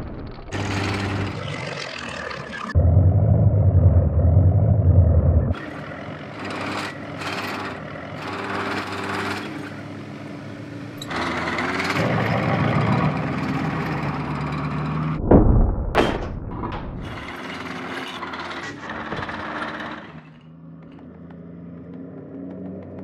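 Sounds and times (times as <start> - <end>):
mechanical clatter and whir: 0.0 - 2.8, 5.4 - 23.0
low engine rumble: 0.0 - 8.2.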